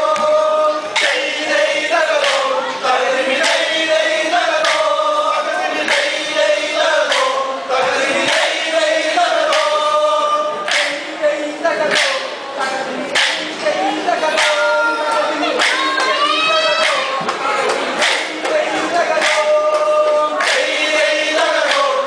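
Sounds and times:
men singing in chorus: 0.0 - 17.4, 18.0 - 22.0
wooden sticks clacking: 10.7 - 11.0, 13.2 - 13.5.

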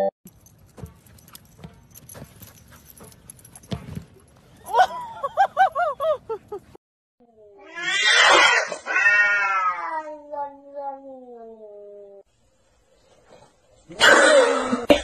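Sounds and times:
cat yowling: 7.6 - 12.2.

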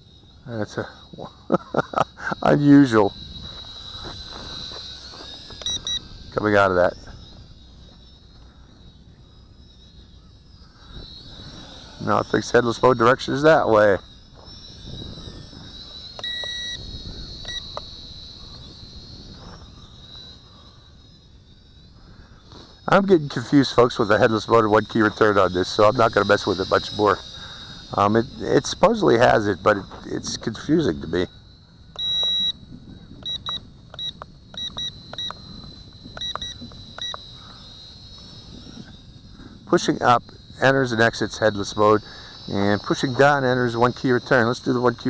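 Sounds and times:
toy drone motors whining: 0.0 - 45.0
wind rumbling on microphone: 2.3 - 20.6, 21.8 - 45.0
radio transmitter beeps: 2.4 - 8.4, 10.7 - 19.8, 31.9 - 39.0
short electronic beeps: 3.2 - 6.1, 14.4 - 17.8, 31.9 - 32.6, 33.2 - 37.2.

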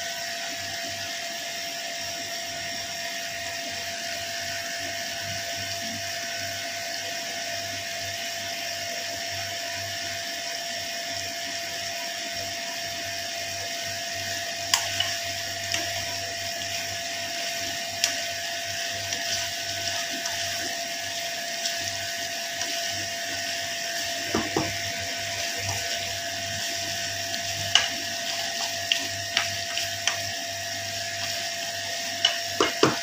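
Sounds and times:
food bubbling in frying pan: 0.2 - 33.0
constant hum: 13.6 - 33.0
wooden spatula knocking pan: 24.2 - 24.8, 32.2 - 33.0.

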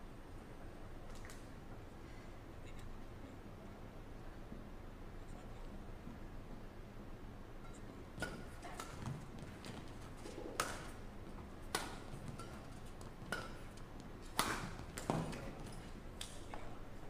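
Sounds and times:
rackets striking shuttlecock: 7.6 - 16.6.

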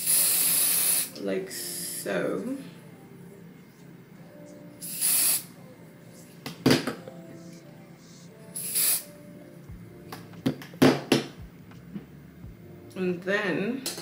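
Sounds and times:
aerosol spray hissing: 0.0 - 1.2, 4.8 - 5.6, 8.6 - 9.1
faint background music: 0.0 - 14.0.

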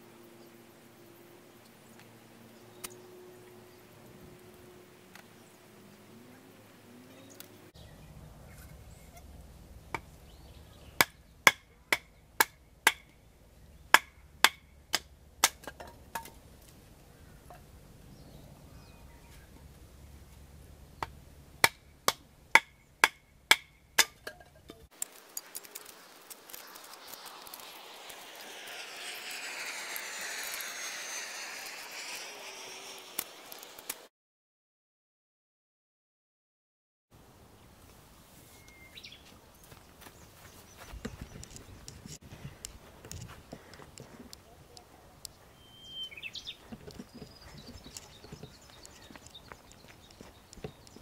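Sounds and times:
airplane flying over: 0.0 - 22.4, 25.0 - 34.1, 40.2 - 51.0
wooden knocks of splitting firewood: 11.0 - 13.1, 13.9 - 16.4, 21.0 - 24.6.

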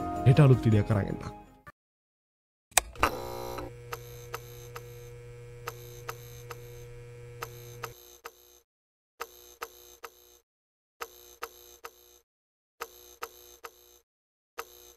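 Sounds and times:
low electrical hum: 3.0 - 7.9.

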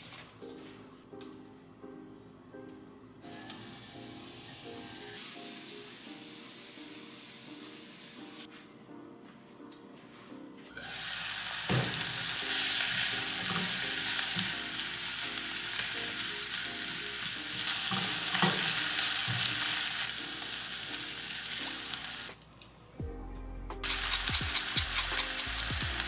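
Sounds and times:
vegetables sizzling in a frying pan: 10.7 - 22.3, 23.9 - 26.0.

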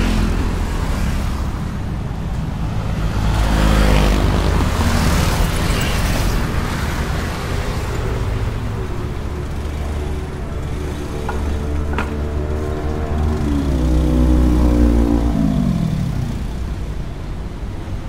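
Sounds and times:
road traffic rumble: 0.0 - 18.0
vehicle passing: 2.8 - 16.8.

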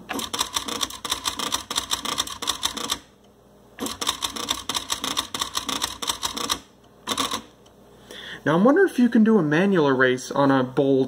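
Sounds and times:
typewriter rapid clicks: 0.1 - 3.1, 3.8 - 7.5.

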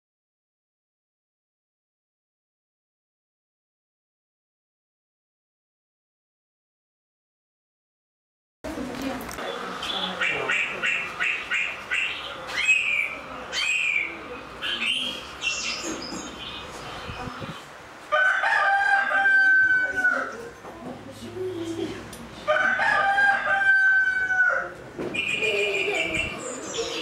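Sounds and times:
small birds chirping: 9.4 - 17.8, 25.1 - 27.0
rooster crowing: 18.1 - 20.4, 22.5 - 24.8.

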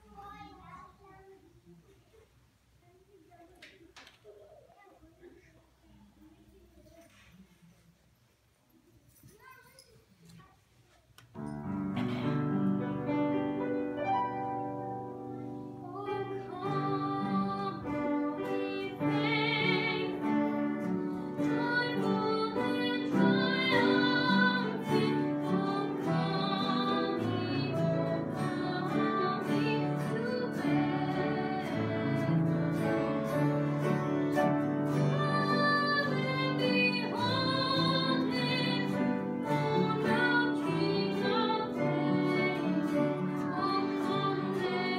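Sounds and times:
acoustic guitar: 11.3 - 44.9
woman singing a hymn: 15.8 - 33.4, 34.9 - 44.9.

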